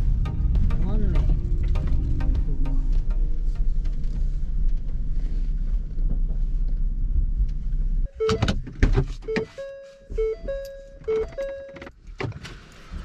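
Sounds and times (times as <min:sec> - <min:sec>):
van engine and road noise: 0:00.0 - 0:13.0
repeating two-note tone: 0:09.3 - 0:11.8.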